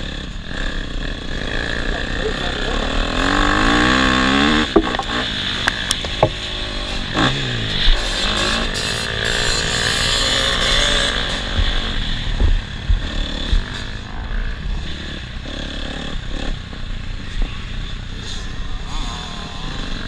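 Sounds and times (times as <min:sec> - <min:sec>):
dirt bike engine running hard: 0:00.0 - 0:20.0
low thumps of bike on track: 0:04.7 - 0:06.5, 0:11.2 - 0:14.1.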